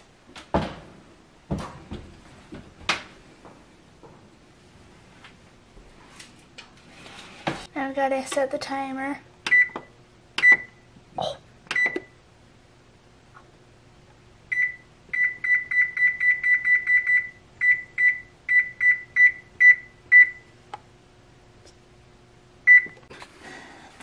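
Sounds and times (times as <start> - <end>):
oven control panel beeps: 9.4 - 10.8, 11.7 - 12.2, 14.5 - 20.6, 22.7 - 23.0.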